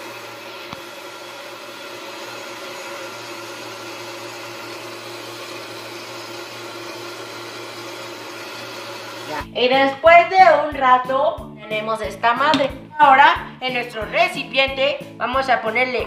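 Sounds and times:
blender whirring: 0.0 - 9.5.

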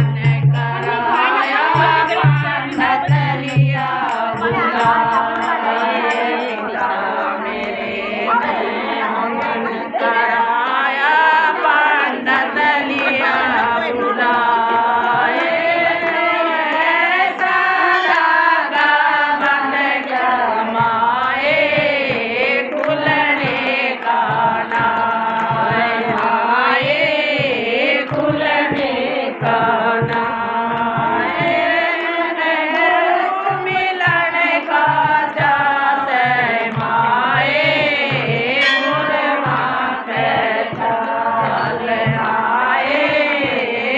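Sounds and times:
women singing devotional song: 0.0 - 43.9
hand-clapping: 13.6 - 42.2.

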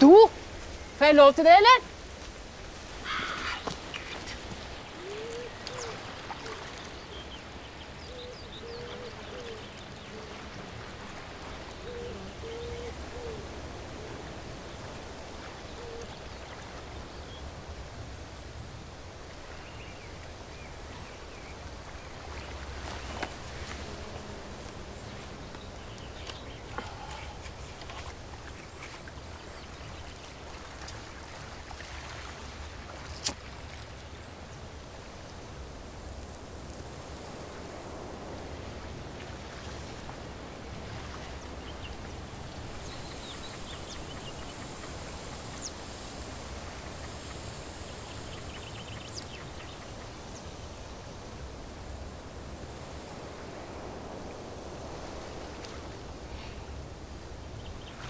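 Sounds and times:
low wind rumble: 33.8 - 58.0.

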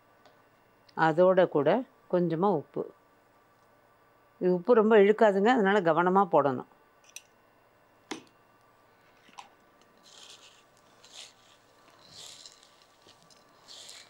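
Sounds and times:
soft dry rustles: 10.0 - 14.0.

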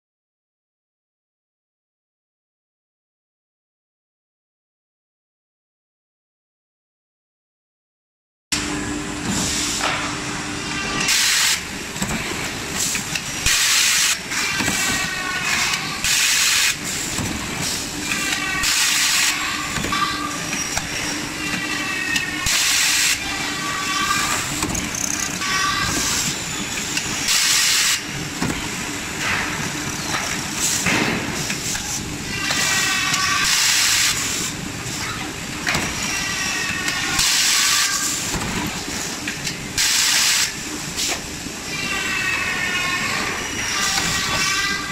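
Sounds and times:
motors whining: 18.0 - 27.2.

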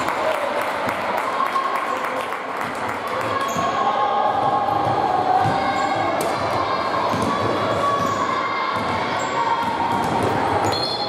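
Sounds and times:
basketball bouncing on court: 4.4 - 10.8.

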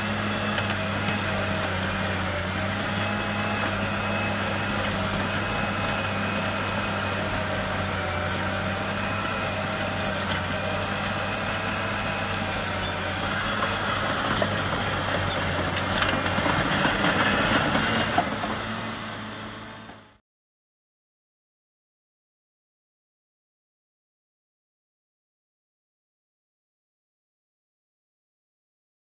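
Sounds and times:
diesel engine running under load: 0.0 - 20.2.

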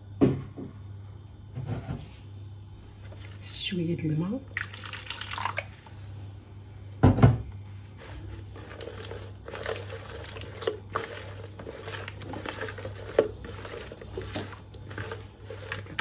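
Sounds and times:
steady low hum: 0.0 - 16.0
hand squishing marinade in bowl: 8.0 - 16.0.

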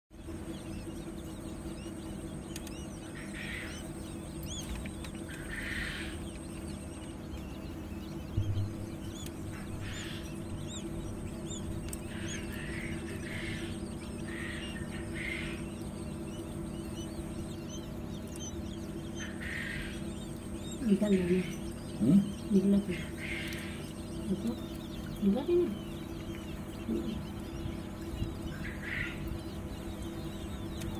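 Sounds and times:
hatching machine hum: 0.1 - 30.9
quail chicks peeping: 0.1 - 30.9.

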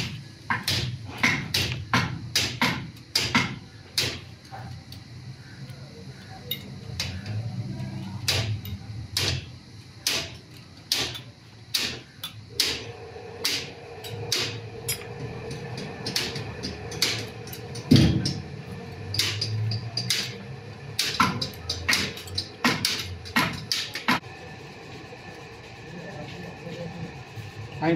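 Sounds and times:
steady hum: 0.0 - 27.9
metal tools tapping on engine: 19.0 - 20.4, 21.0 - 24.1.

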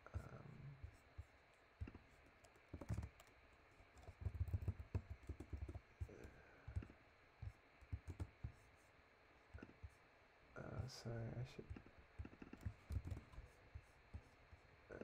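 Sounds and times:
typing on computer keyboard: 1.8 - 7.0, 7.8 - 8.6, 11.7 - 14.3.

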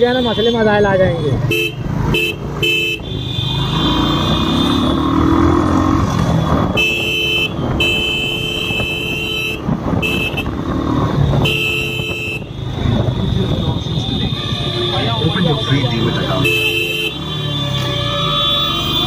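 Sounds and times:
engines rumbling: 0.0 - 19.0
vehicle horns honking: 0.0 - 19.0
engine revving up: 3.6 - 6.7.

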